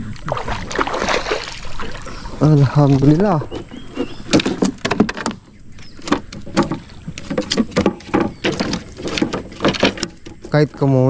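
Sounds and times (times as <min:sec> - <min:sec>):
knocks and clacks in a boat: 0:02.7 - 0:11.0.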